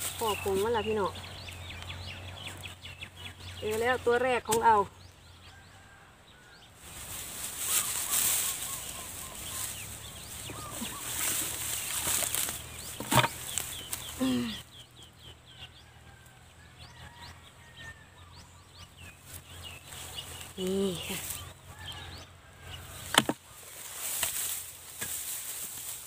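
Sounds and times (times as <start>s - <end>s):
hands scraping in straw and soil: 0.0s - 1.2s, 6.8s - 14.3s, 19.2s - 21.5s, 23.0s - 26.0s.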